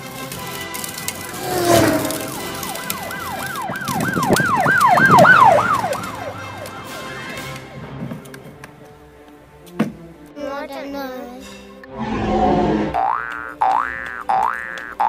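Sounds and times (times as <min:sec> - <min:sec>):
siren yelping: 0:01.4 - 0:07.6.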